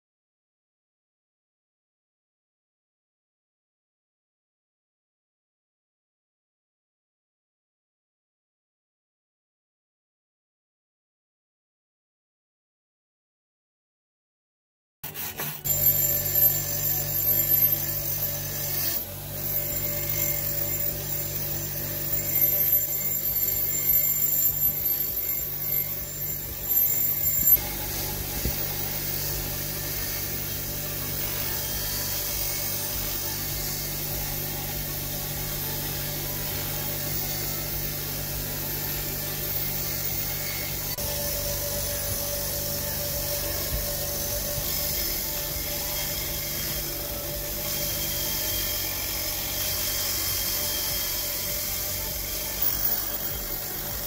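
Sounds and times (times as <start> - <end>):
wooden handle being scraped: 15.0 - 47.4
bench grinder wire wheel: 15.0 - 54.0.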